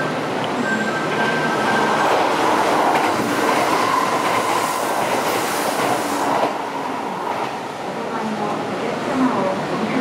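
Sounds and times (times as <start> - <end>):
train passing at speed: 0.0 - 10.0.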